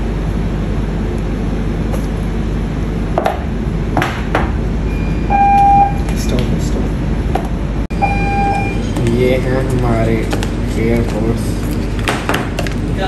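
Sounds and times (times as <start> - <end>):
steady background hum: 0.0 - 13.0
short beep: 4.9 - 6.0, 7.9 - 8.8.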